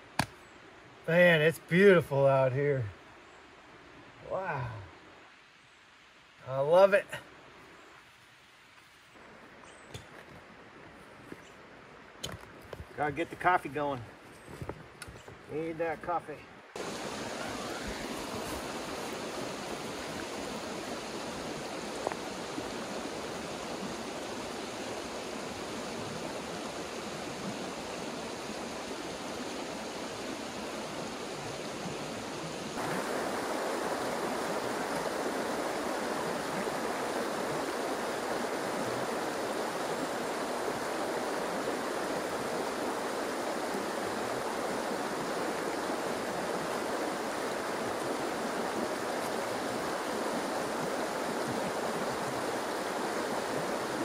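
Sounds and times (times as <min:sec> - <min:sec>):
flowing river water rushing: 0:16.5 - 0:54.0.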